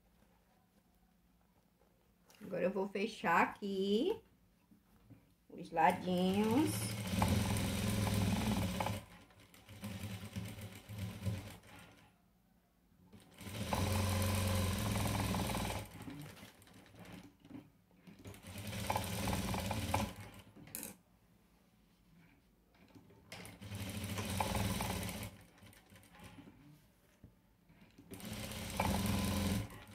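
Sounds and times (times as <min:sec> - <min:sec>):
sewing machine stitching: 0:05.9 - 0:12.1, 0:13.1 - 0:21.0, 0:22.8 - 0:26.8, 0:27.7 - 0:29.9.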